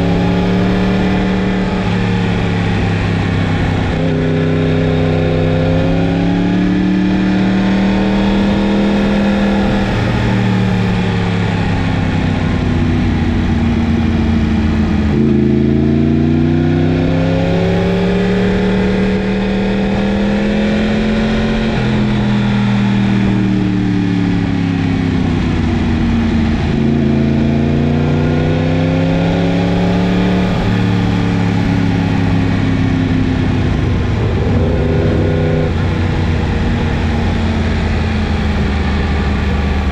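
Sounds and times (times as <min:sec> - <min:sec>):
motorcycle engine accelerating: 0:00.0 - 0:39.9.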